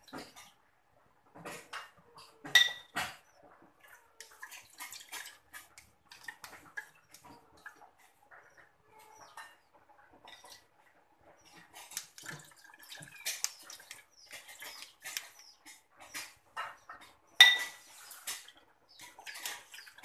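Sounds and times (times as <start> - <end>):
liquid trickling into bowl: 3.8 - 7.8, 11.5 - 15.4
metal spoon scraping plastic sieve: 13.1 - 16.8.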